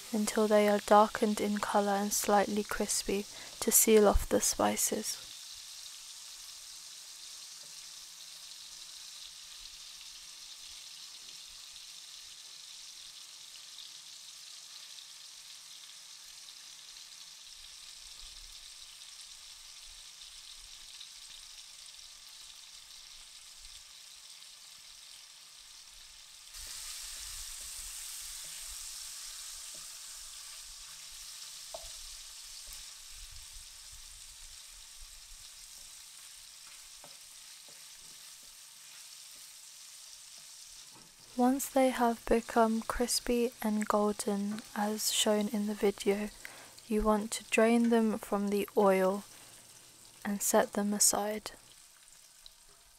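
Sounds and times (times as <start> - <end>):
paneer sizzling in hot oil: 0.0 - 52.9
wooden spatula knocking pan: 31.7 - 32.0.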